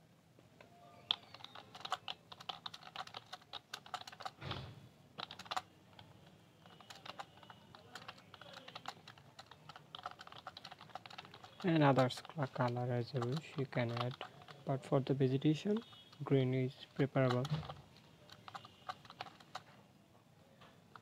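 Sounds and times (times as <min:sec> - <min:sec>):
keyboard key clicks: 0:01.1 - 0:04.4, 0:05.2 - 0:14.5, 0:17.0 - 0:19.7.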